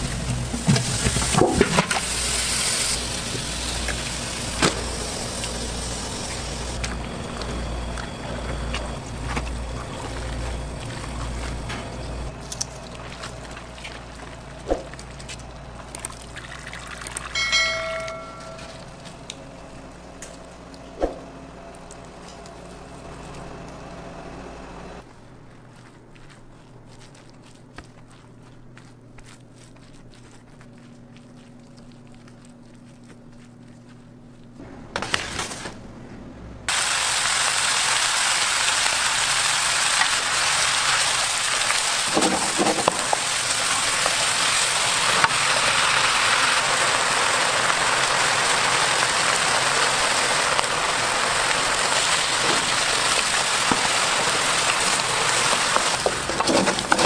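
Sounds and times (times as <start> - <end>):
low hum: 0.0 - 29.1
shrimp sizzling in a hot pan: 2.0 - 6.5, 36.7 - 56.0
stirring in pan: 51.6 - 57.0.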